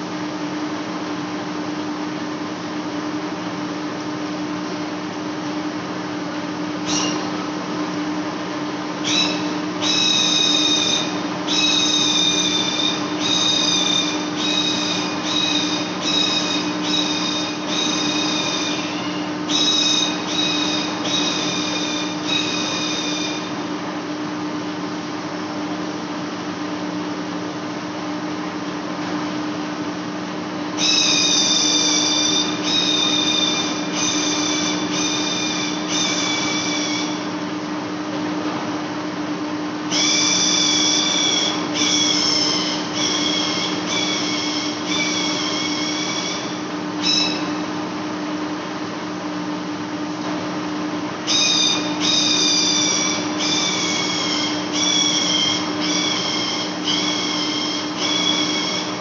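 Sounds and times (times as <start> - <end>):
cutting tool screeching squeal: 6.9 - 7.3, 9.0 - 23.5, 30.8 - 37.3, 39.9 - 47.6, 51.3 - 59.0.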